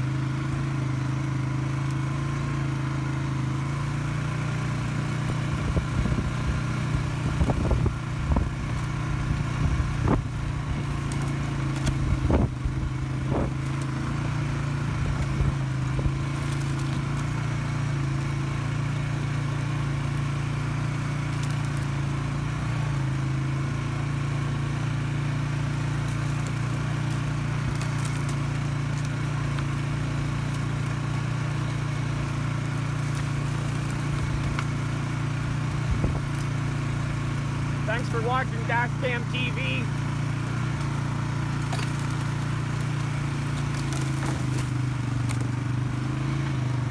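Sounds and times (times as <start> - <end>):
atv engine running: 0.0 - 46.9.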